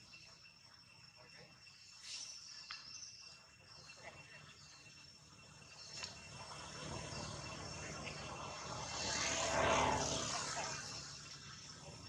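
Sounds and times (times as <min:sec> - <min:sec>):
motor engine passing by: 0:05.3 - 0:12.0.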